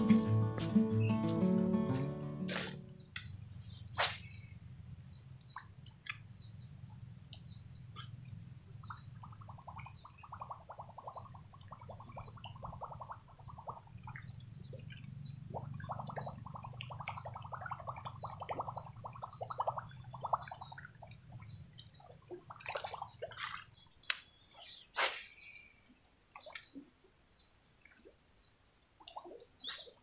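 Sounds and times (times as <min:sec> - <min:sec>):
small birds chirping: 0:00.0 - 0:30.0
sharp loud click: 0:02.5 - 0:03.3.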